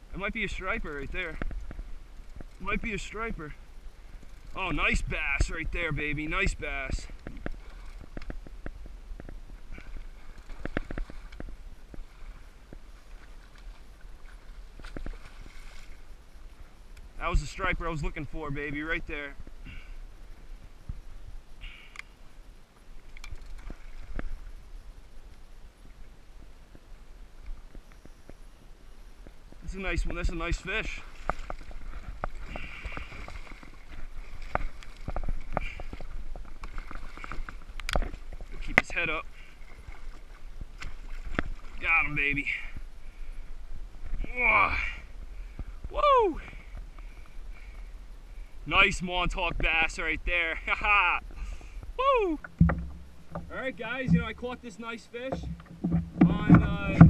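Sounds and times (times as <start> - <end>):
fish thrashing and splashing: 31.1 - 38.7
knocks against kayak: 52.4 - 54.4, 55.3 - 57.0
wind rumble on microphone: 55.3 - 57.0.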